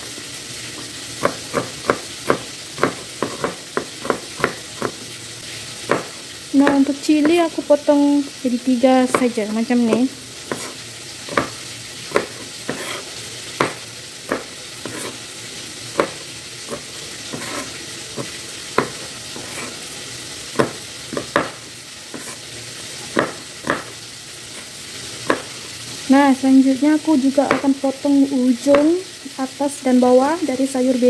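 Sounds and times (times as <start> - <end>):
fish sizzling in oil: 0.0 - 31.0
knife chopping on cutting board: 0.8 - 5.0, 5.8 - 7.6, 9.1 - 15.2, 15.9 - 19.8, 20.5 - 22.4, 23.0 - 24.0, 24.6 - 25.6, 27.5 - 27.7.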